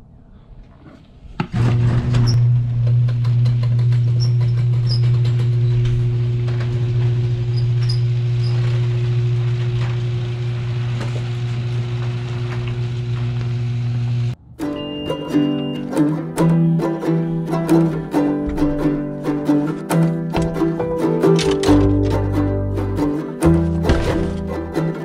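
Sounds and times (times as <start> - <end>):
garage door motor hum: 1.3 - 14.4
door clicking and rattling: 19.9 - 22.3.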